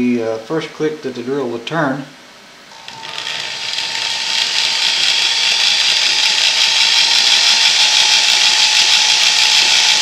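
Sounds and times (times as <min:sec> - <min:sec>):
electric drill whining: 0:02.7 - 0:10.0.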